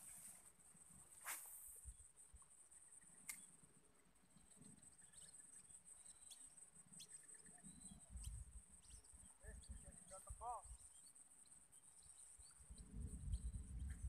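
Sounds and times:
crickets trilling: 0:00.0 - 0:14.0
sharp click: 0:03.2 - 0:03.5.

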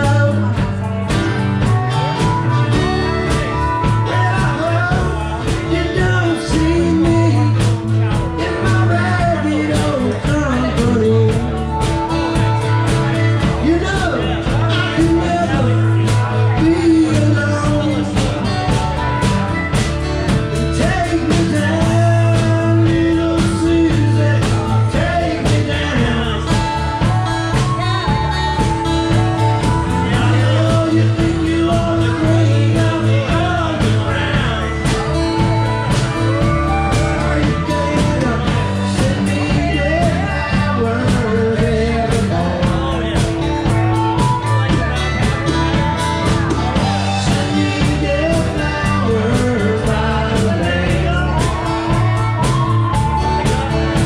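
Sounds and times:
drums: 0:00.0 - 0:54.0
second guitar: 0:00.0 - 0:54.0
strummed acoustic guitar: 0:00.0 - 0:54.0
harmonica: 0:11.0 - 0:41.3.

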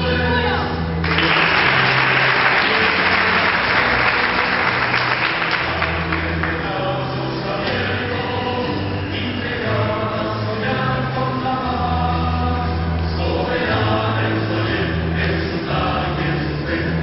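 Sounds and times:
music with low notes: 0:00.0 - 0:17.0
crowd applauding: 0:01.0 - 0:06.7
choir singing: 0:01.2 - 0:17.0.

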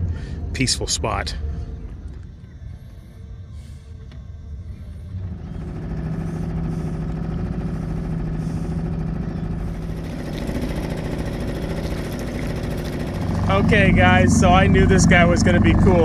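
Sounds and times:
outboard motor running: 0:04.0 - 0:16.0.

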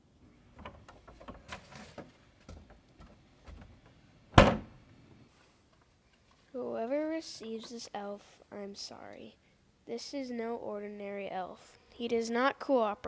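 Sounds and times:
plastic bin lid banging shut: 0:04.4 - 0:04.8.

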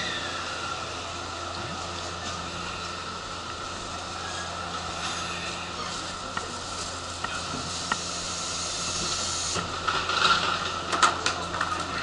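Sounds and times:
compressed air hiss: 0:04.8 - 0:09.7.

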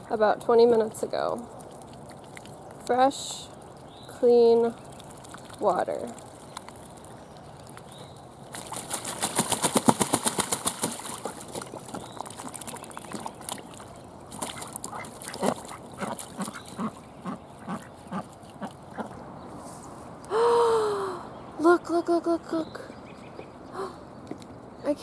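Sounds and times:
ducks splashing in water: 0:00.8 - 0:19.2.

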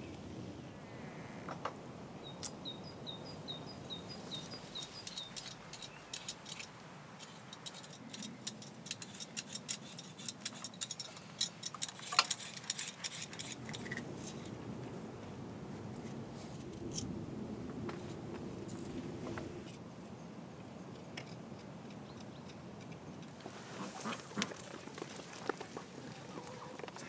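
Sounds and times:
bird chirping: 0:02.2 - 0:06.6
blade scraping ginger: 0:04.8 - 0:14.4.

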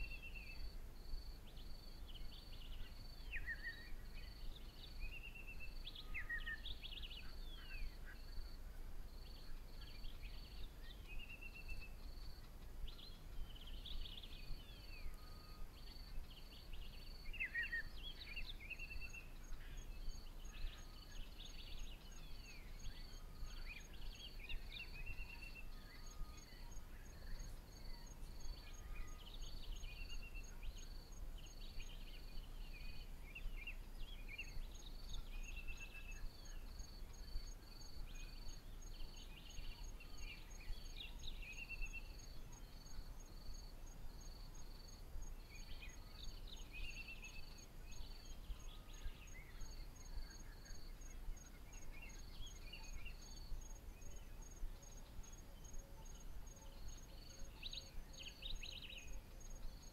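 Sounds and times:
insects chirring in rapid pulses: 0:39.8 - 0:48.3.

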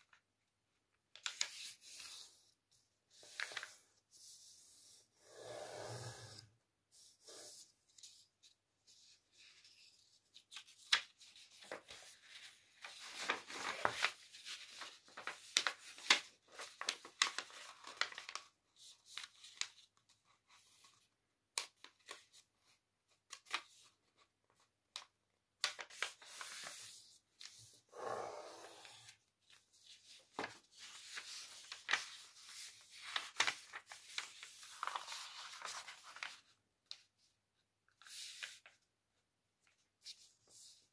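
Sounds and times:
paper rustling: 0:01.1 - 0:04.0, 0:07.8 - 0:27.7, 0:29.1 - 0:37.3, 0:37.9 - 0:38.8
paper folds snapping: 0:30.4 - 0:37.0.

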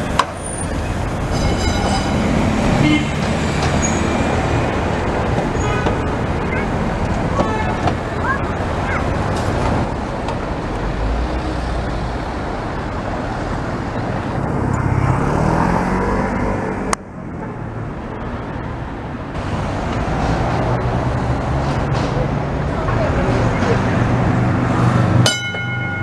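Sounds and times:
street traffic: 0:00.0 - 0:26.0
car passing close: 0:10.8 - 0:17.0.

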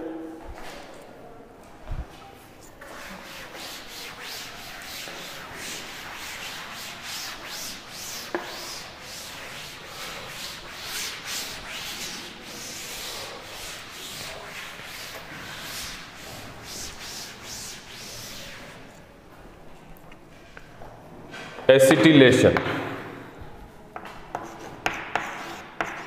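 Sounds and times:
cloth wiping chalkboard: 0:02.7 - 0:19.0, 0:24.0 - 0:26.0.

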